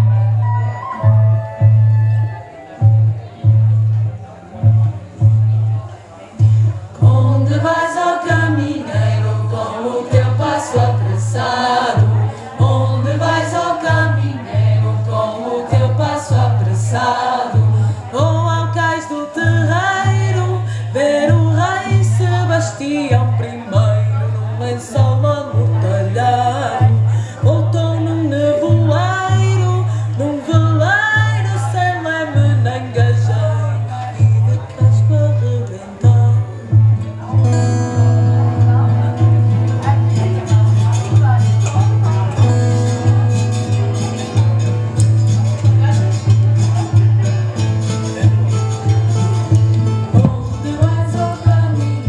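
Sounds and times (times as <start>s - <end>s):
voices singing together: 6.9s - 23.7s, 50.0s - 52.0s
low bass note pulsing: 50.1s - 51.1s.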